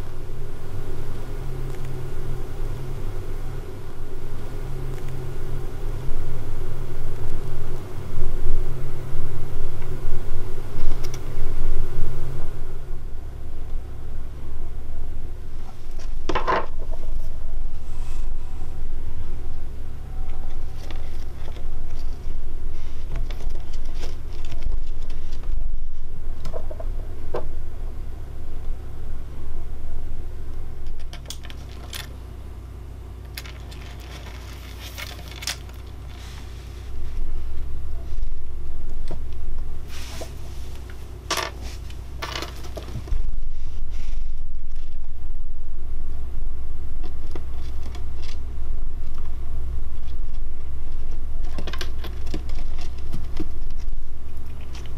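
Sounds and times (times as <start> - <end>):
low rumble: 0.0 - 54.9
wood shavings rustling: 33.2 - 45.1.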